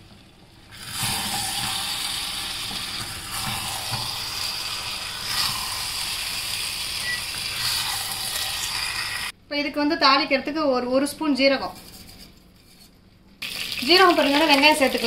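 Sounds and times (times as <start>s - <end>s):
food sizzling in oil: 0.7s - 9.3s, 13.4s - 15.0s.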